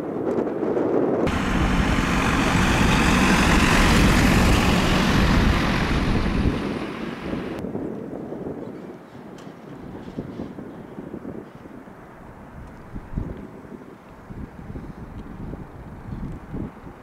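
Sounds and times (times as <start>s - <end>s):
jet engines roaring: 1.3s - 7.6s.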